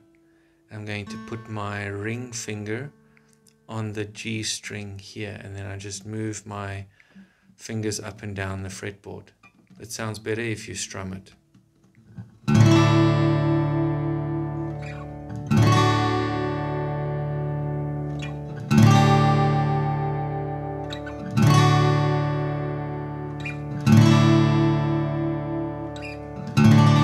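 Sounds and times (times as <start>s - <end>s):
acoustic guitar strummed slowly: 0.0s - 3.7s, 12.1s - 27.0s.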